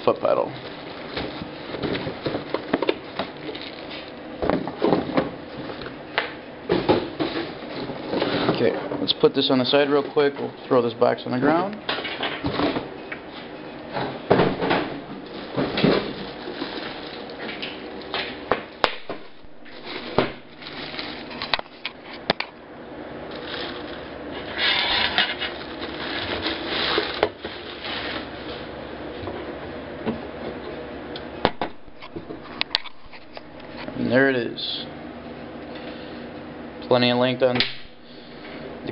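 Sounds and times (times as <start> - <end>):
plastic wrapping crinkling: 0.0 - 4.2, 15.1 - 18.1, 19.3 - 22.3, 23.2 - 28.7.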